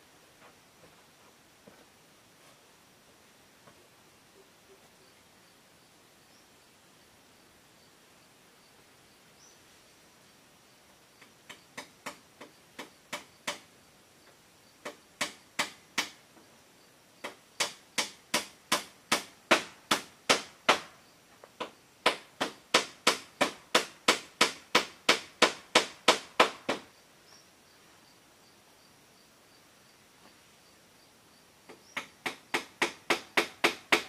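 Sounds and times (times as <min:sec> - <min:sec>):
hammer blows on bamboo roof: 0:11.2 - 0:16.5, 0:17.2 - 0:26.9, 0:31.7 - 0:34.0.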